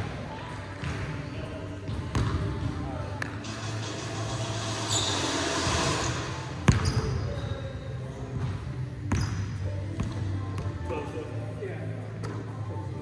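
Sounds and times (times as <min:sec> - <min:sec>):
basketball bouncing on hardwood floor: 0:06.7 - 0:07.0.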